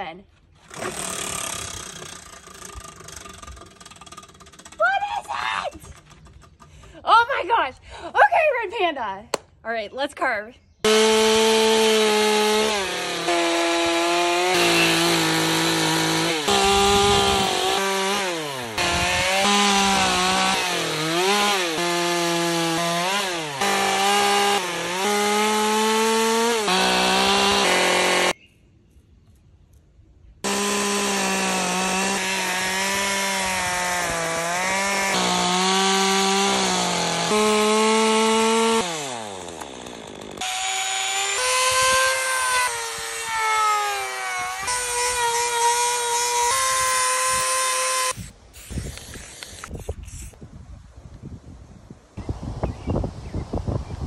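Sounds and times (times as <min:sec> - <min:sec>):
chainsaw cutting into log: 0:00.6 - 0:04.8, 0:10.9 - 0:28.4, 0:30.4 - 0:50.4
rotary carving tool whining: 0:10.9 - 0:28.4, 0:30.5 - 0:50.4.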